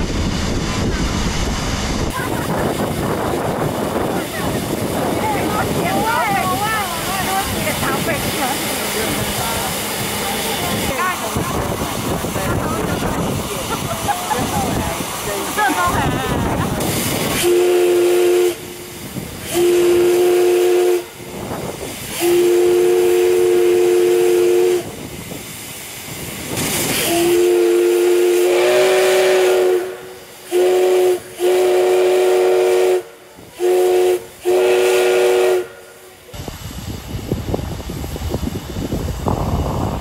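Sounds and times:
steam hissing: 0.0 - 40.0
steam whistle blasts: 17.3 - 18.9, 19.5 - 21.2, 22.1 - 24.9, 27.0 - 36.2.

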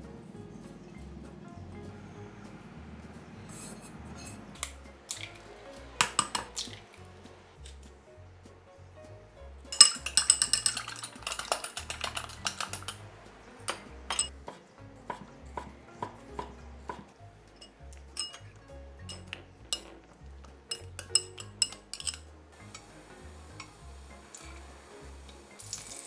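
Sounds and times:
chopsticks clinking in glass bowl: 6.0 - 6.6, 9.7 - 13.0, 14.1 - 14.3, 17.5 - 22.3.

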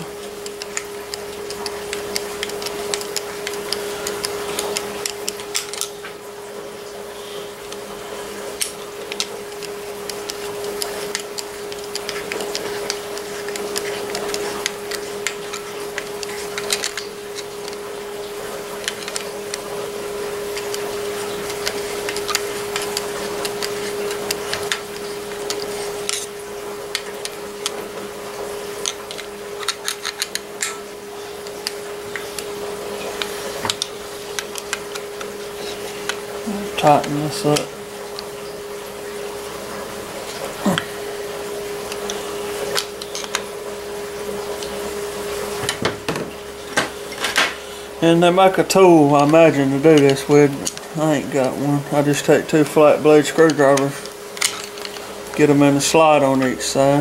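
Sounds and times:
steady hum: 0.0 - 57.0
screwdriver scraping metal: 9.1 - 17.8.

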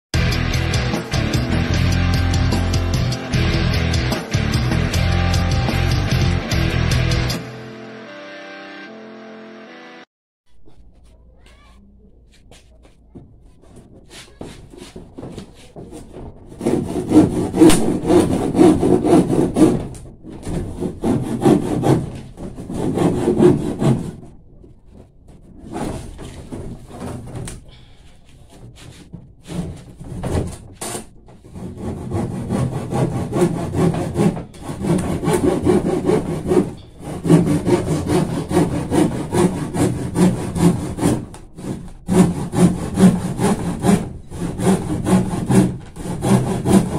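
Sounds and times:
handsaw cutting plywood: 14.1 - 24.4, 25.5 - 27.6, 28.6 - 46.9.

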